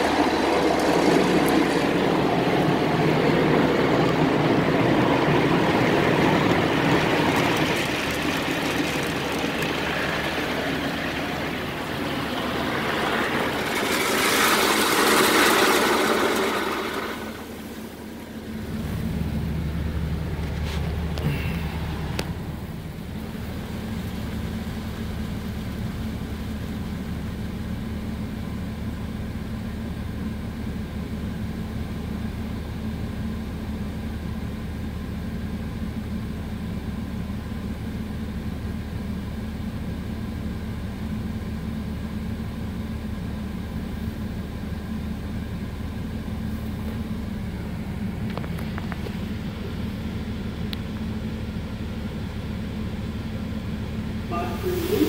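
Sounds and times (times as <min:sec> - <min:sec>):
car wash machinery hum: 0:00.0 - 0:55.0
water spray hiss: 0:54.3 - 0:55.0.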